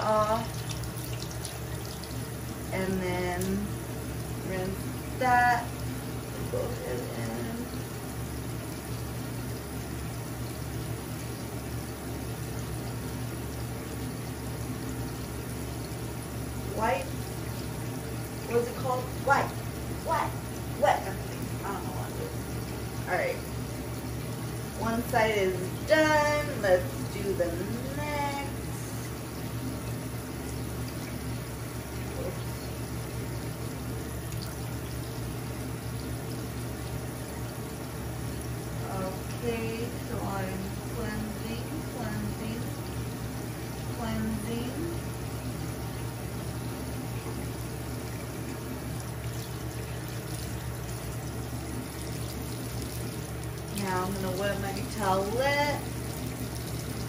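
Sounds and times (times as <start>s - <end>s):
low steady hum: 0.0s - 57.0s
tap water splashing into basin: 0.4s - 2.4s, 29.0s - 38.0s, 45.4s - 55.0s.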